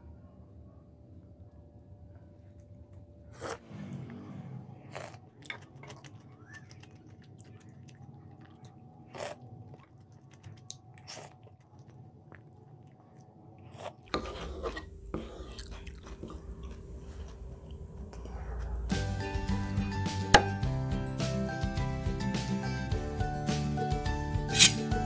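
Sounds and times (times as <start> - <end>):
chewing and biting noodles: 4.8 - 17.8
crunching cucumber: 4.9 - 17.4.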